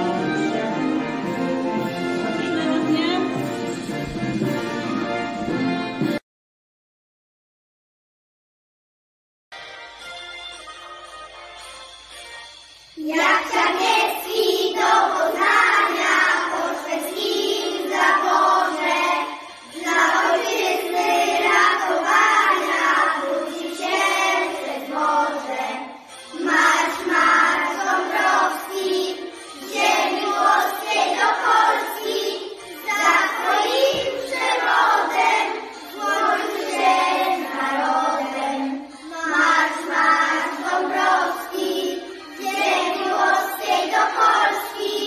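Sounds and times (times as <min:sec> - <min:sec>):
children singing together: 0:00.0 - 0:01.9, 0:13.0 - 0:45.0.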